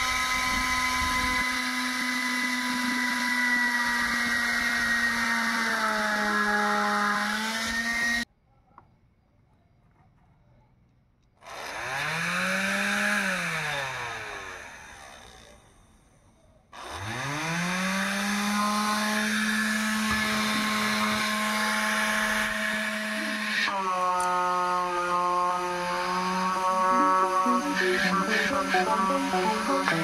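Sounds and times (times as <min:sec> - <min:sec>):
electric fan motor whining: 0:00.0 - 0:08.2, 0:17.3 - 0:30.0.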